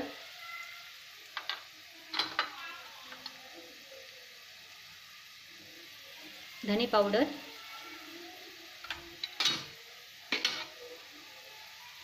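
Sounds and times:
onions sizzling in a pan: 0.0s - 12.0s.

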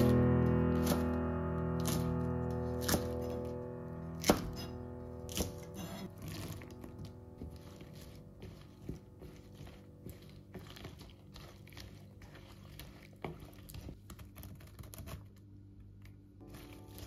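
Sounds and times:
wet rustling of vegetables: 0.0s - 17.0s
chopsticks stirring in a bowl: 1.8s - 3.5s, 4.2s - 14.6s, 16.4s - 17.0s.

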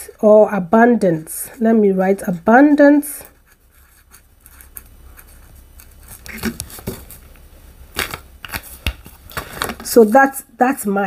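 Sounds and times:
marker scratching on leaf: 2.4s - 6.6s.

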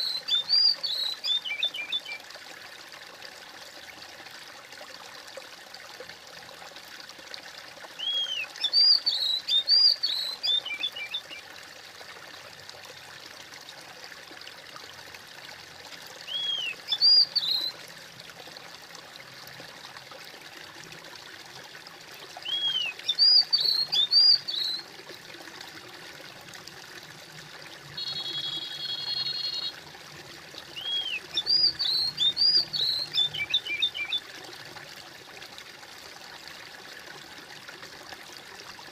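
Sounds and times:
songbird singing: 0.0s - 2.2s, 8.0s - 11.4s, 16.3s - 17.8s, 22.4s - 24.9s, 28.0s - 29.8s, 30.7s - 34.3s
water trickling: 0.0s - 38.9s.

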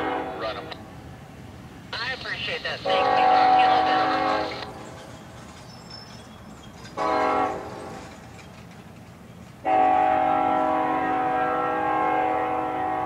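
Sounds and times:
locomotive air horn blasts: 0.0s - 0.7s, 2.8s - 4.7s, 7.0s - 7.8s, 9.6s - 13.0s.

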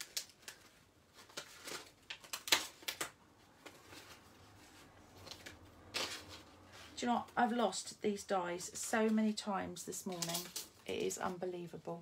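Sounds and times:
small items clicking and rustling: 8.8s - 11.4s.

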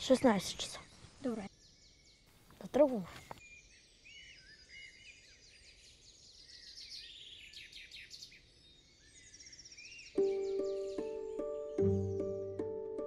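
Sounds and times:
birds chirping: 0.0s - 13.0s
music with held notes: 10.2s - 13.0s.

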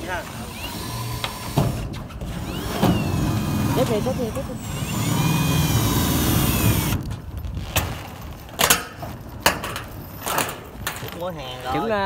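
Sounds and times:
cordless power driver whining: 0.3s - 7.2s.

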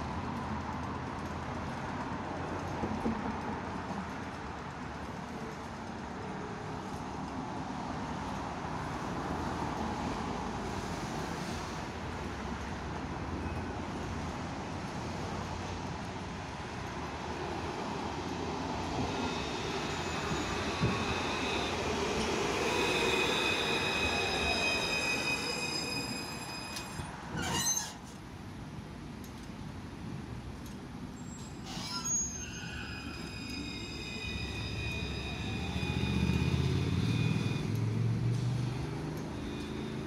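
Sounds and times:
tram wheels rumbling on rails: 0.0s - 40.0s
tram wheel squeal: 18.4s - 28.2s, 31.1s - 40.0s.

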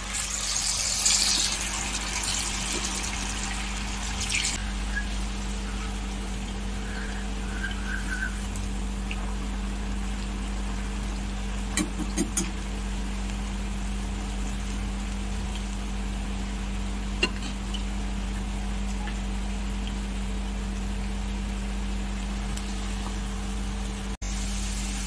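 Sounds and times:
low hum: 0.0s - 11.8s
hot oil sizzling: 0.0s - 25.0s.

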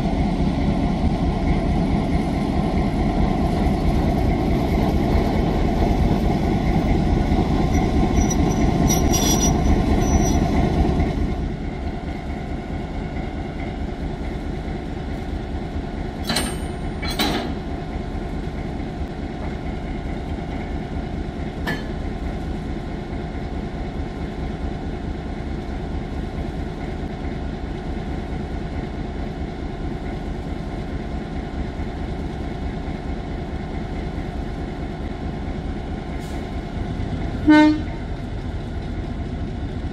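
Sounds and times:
diesel train rumbling: 0.0s - 39.9s
sharp metal clanks: 16.2s - 17.6s.

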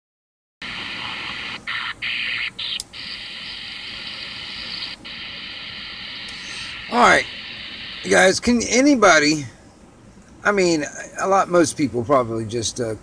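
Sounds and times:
radio static hiss: 0.6s - 9.4s.

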